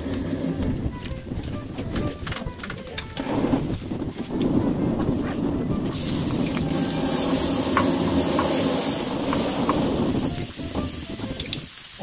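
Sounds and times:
garlic sizzling on hot griddle: 3.2s - 12.0s.

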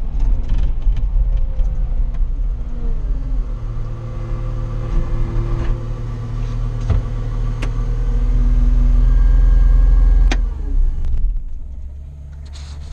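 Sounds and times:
diesel engine running: 0.0s - 12.9s.

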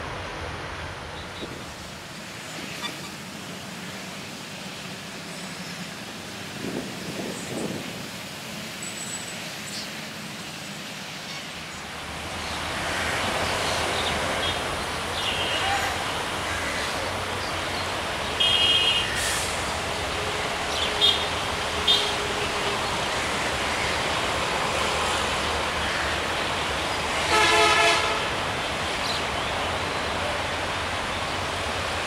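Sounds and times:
diesel locomotive rumble: 0.0s - 32.0s
train air horn blast: 27.2s - 28.4s.

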